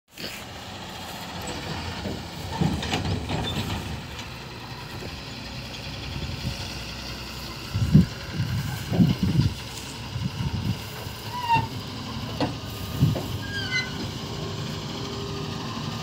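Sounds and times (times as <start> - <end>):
diesel engine rumbling: 0.1 - 16.0
knocks and clanks: 1.5 - 4.4.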